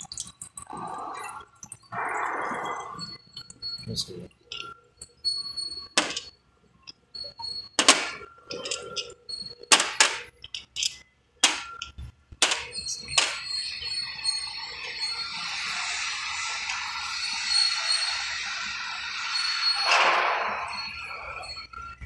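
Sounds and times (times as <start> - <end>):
glass bottles clinking: 2.7 - 15.9.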